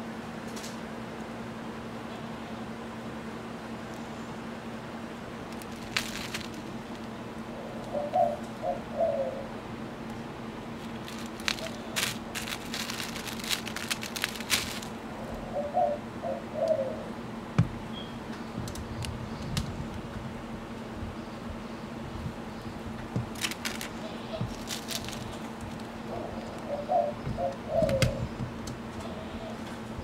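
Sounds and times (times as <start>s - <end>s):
tissue paper crackling: 5.5s - 7.1s, 10.8s - 15.0s, 23.3s - 26.0s
dove cooing: 5.8s - 9.7s, 10.7s - 17.4s, 22.2s - 30.0s.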